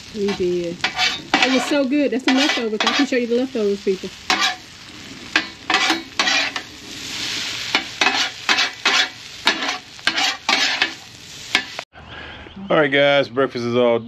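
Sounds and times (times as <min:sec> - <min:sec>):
food sizzling in a frying pan: 0:00.0 - 0:11.9
utensil stirring and scraping: 0:00.2 - 0:03.2, 0:04.3 - 0:11.8.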